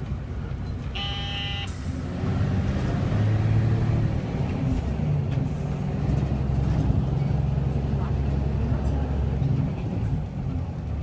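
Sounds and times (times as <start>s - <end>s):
vehicle rumble on road: 0.0s - 11.0s
brief high tone: 1.0s - 1.7s.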